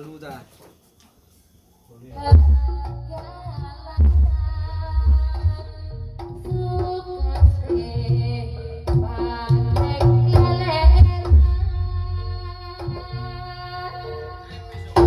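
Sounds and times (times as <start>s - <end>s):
singing voice: 1.9s - 15.0s
hand drum beats: 2.4s - 13.3s.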